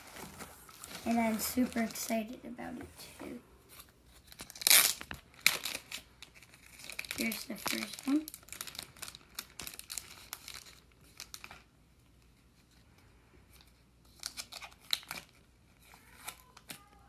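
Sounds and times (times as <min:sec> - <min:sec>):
cards rustling: 0:00.0 - 0:02.3, 0:03.2 - 0:11.6
plastic wrapper crinkling and tearing: 0:00.0 - 0:02.3, 0:04.1 - 0:12.3, 0:13.5 - 0:17.0.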